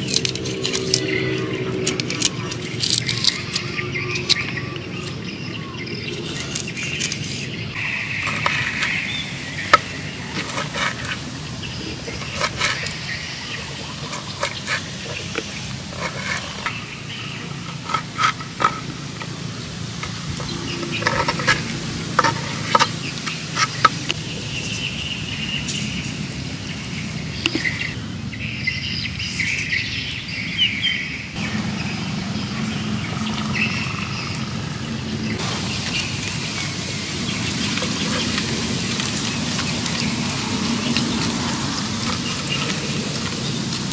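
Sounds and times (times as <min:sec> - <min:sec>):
birds chirping: 0:00.0 - 0:43.9
insects chirping: 0:00.0 - 0:43.9.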